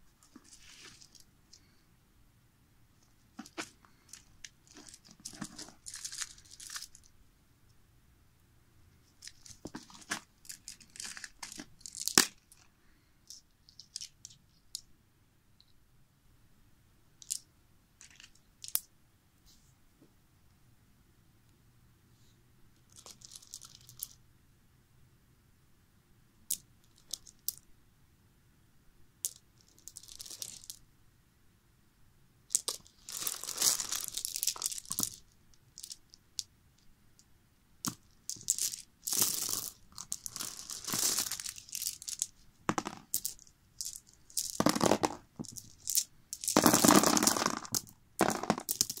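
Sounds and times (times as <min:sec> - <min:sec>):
cartridges clinking and rattling: 0:37.8 - 0:49.0.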